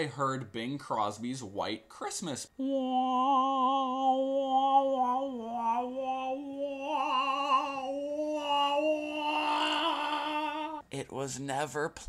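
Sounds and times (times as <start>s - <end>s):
man singing long notes: 2.6s - 10.8s.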